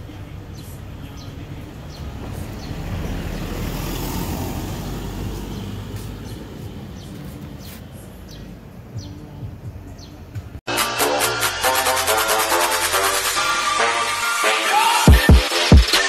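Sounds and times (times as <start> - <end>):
birds chirping: 0.0 - 10.6.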